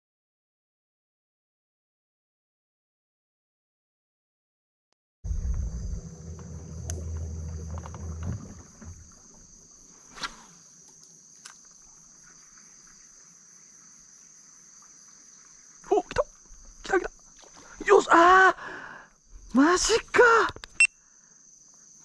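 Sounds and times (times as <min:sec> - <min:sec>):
low rumble: 0:05.2 - 0:09.2
high-pitched insect chorus: 0:05.3 - 0:22.0.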